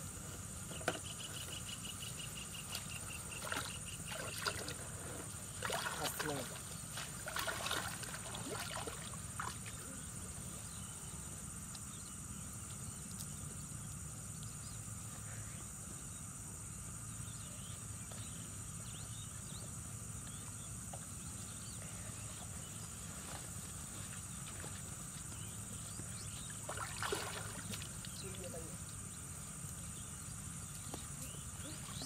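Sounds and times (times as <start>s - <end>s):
insects droning: 0.0s - 32.0s
low steady hum: 0.0s - 32.0s.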